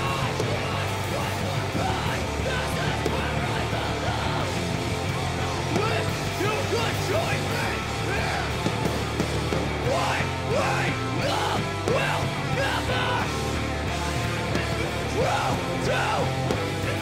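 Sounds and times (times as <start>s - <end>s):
punk rock band playing: 0.0s - 17.0s
vocalist yelling: 9.8s - 13.4s, 14.5s - 17.0s.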